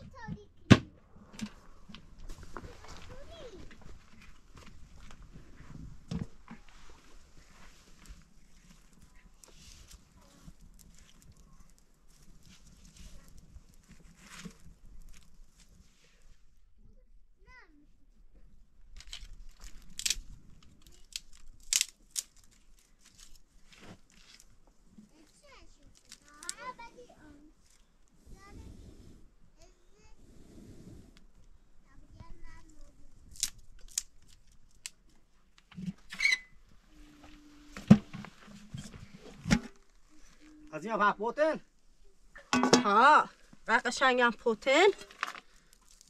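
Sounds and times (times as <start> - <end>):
twigs rustling and crackling: 6.6 - 16.0, 18.9 - 28.0, 32.5 - 40.8, 44.7 - 46.0
metal cooking pot and lid handled: 37.8 - 39.9, 42.4 - 43.1
sharp knocks on metal pot: 42.5 - 43.0.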